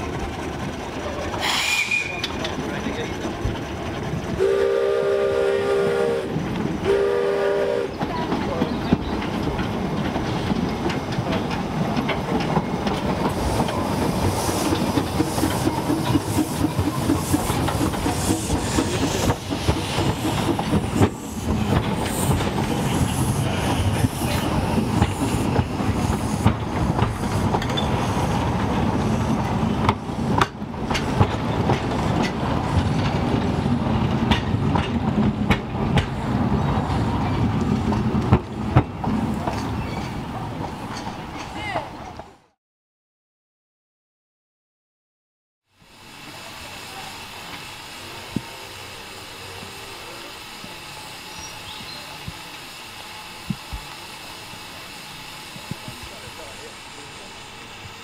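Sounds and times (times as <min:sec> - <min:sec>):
wheels clicking over rail joints: 0:00.0 - 0:04.4, 0:07.9 - 0:42.3
steam locomotive working: 0:00.0 - 0:42.6, 0:45.7 - 0:58.0.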